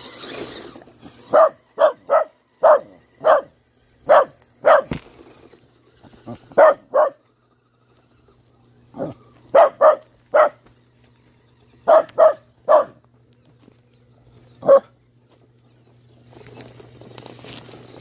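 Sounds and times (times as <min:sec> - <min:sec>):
rc truck driving over dirt: 0:00.0 - 0:18.0
dog barking: 0:01.3 - 0:03.5, 0:04.1 - 0:05.0, 0:06.6 - 0:07.2, 0:09.0 - 0:10.6, 0:11.9 - 0:13.0, 0:14.6 - 0:14.9.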